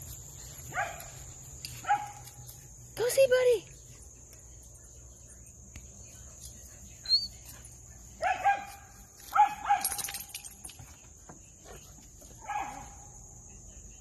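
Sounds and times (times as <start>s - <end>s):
crickets chirring: 0.0s - 14.0s
dog barking: 0.7s - 1.2s, 1.8s - 2.2s, 8.2s - 10.0s, 12.4s - 13.1s.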